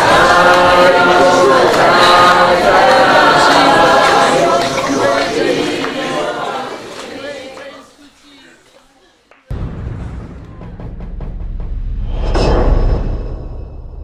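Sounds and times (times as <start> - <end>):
choir singing: 0.0 - 8.0.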